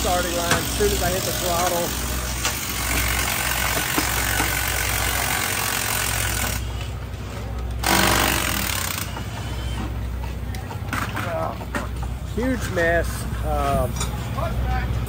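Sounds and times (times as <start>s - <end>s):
power tools rattling: 0.0s - 6.8s, 7.7s - 12.9s.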